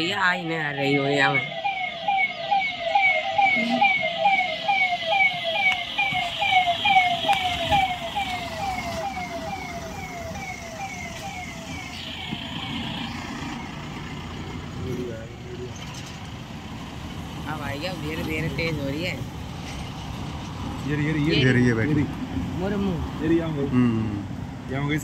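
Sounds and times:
electronic siren yelping: 0.0s - 14.2s
vehicle engines and traffic: 0.0s - 25.0s.

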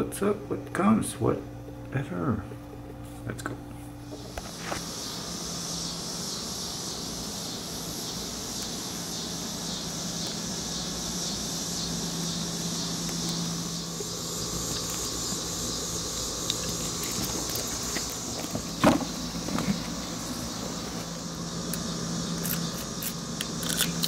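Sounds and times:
low steady hum: 0.0s - 24.0s
insects singing shrill chorus: 4.2s - 24.0s.

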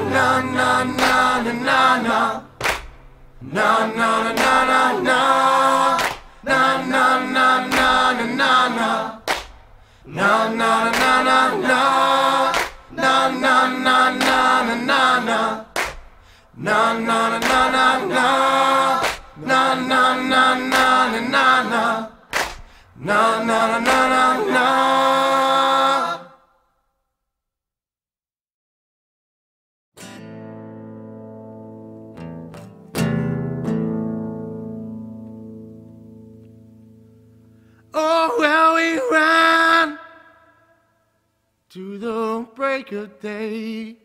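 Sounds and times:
voices singing in harmony: 0.0s - 2.8s, 3.4s - 26.6s, 37.9s - 40.8s, 41.7s - 44.0s.

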